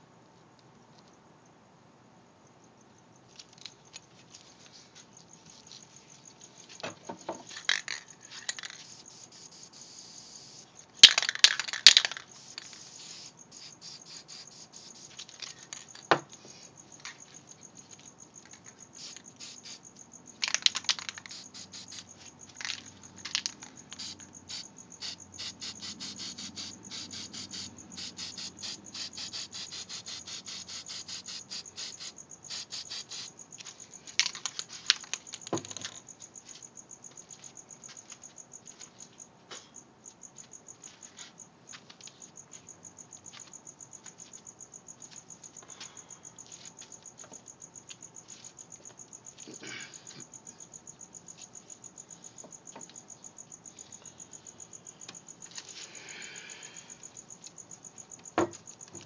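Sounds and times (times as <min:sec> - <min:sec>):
spray can hissing: 0:08.3 - 0:15.3, 0:19.0 - 0:19.8, 0:21.0 - 0:22.0, 0:23.9 - 0:33.3.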